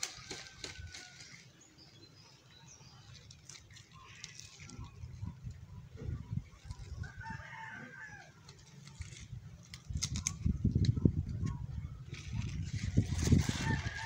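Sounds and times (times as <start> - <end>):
hands rustling plant stalks: 0.0 - 2.0, 2.8 - 5.6, 8.2 - 14.0
rooster crowing: 7.0 - 8.4, 13.4 - 14.0.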